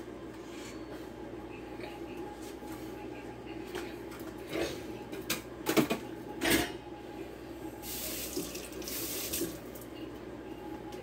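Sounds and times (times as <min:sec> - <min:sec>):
tap water running into sink: 0:08.1 - 0:09.6.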